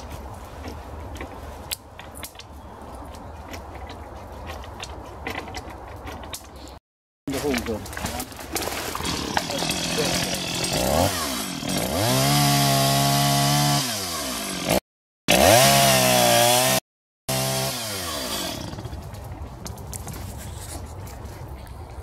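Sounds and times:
chainsaw cutting tree trunk: 0:08.6 - 0:19.0.

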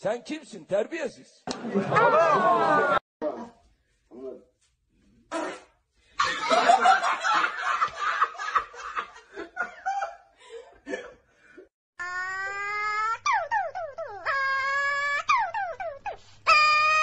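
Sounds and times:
people laughing: 0:01.5 - 0:03.0, 0:06.2 - 0:11.0.

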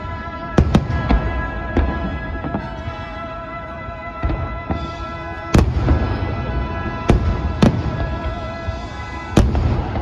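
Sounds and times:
fireworks booming: 0:00.0 - 0:03.4, 0:04.2 - 0:10.0
music playing: 0:00.0 - 0:10.0.

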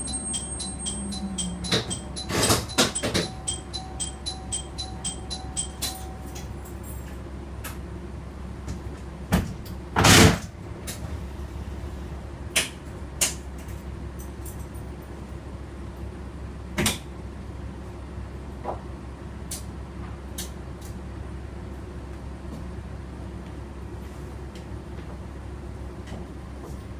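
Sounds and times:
rapid chime-like ticking: 0:00.0 - 0:06.4
diesel railcar engine running: 0:00.0 - 0:26.9.

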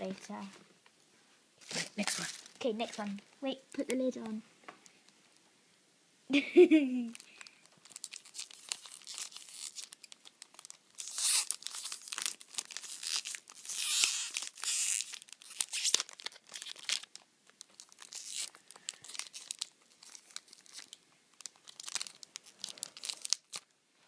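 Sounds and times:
tissue paper crinkling and tearing: 0:01.6 - 0:03.2, 0:07.1 - 0:23.7.

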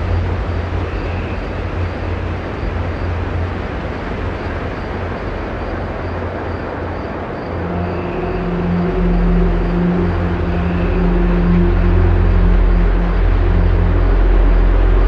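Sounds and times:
faint sustained tones: 0:00.0 - 0:03.2, 0:07.5 - 0:15.0
dark ambient drone music: 0:00.0 - 0:15.0.

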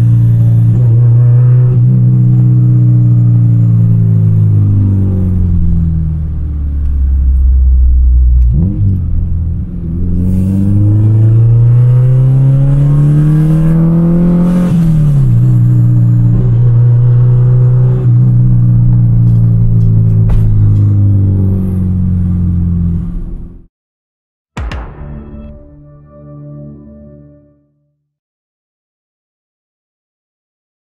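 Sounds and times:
car engine accelerating: 0:00.0 - 0:23.7.

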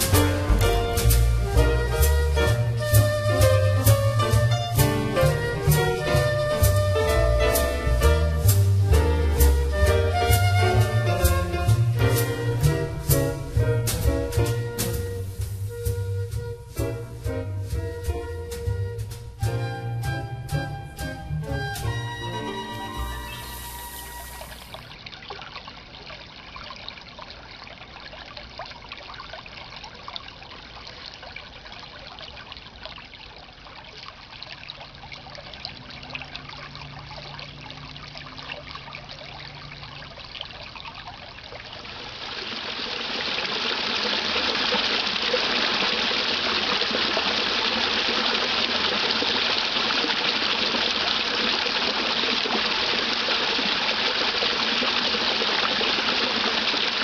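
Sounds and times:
creek water trickling over rocks: 0:00.0 - 0:16.8, 0:18.5 - 0:57.0
small waterfall rushing: 0:22.4 - 0:28.8, 0:34.9 - 0:57.0.

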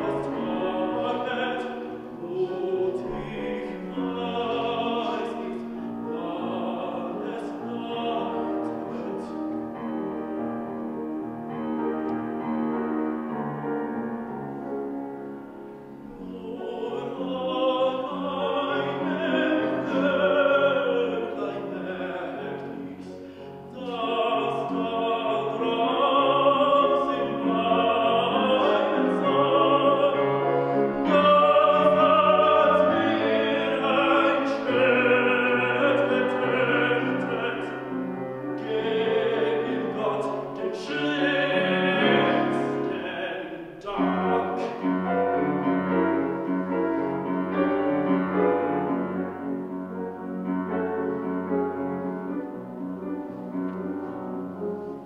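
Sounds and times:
tenor singing: 0:00.0 - 0:13.4, 0:14.6 - 0:55.0
grand piano accompaniment: 0:00.0 - 0:55.0.

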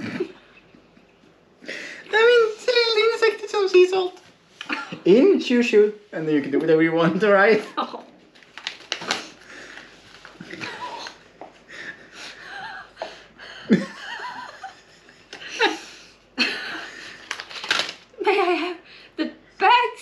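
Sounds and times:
woman laughing: 0:10.5 - 0:17.1, 0:18.2 - 0:19.4
man laughing: 0:11.7 - 0:16.9.

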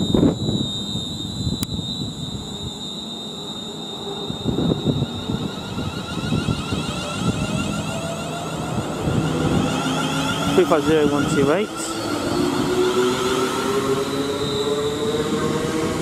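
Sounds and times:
wind rumble on microphone: 0:00.0 - 0:02.4, 0:04.2 - 0:13.0
electric train whine: 0:00.0 - 0:16.0
traction whine rising in pitch: 0:00.0 - 0:16.0.

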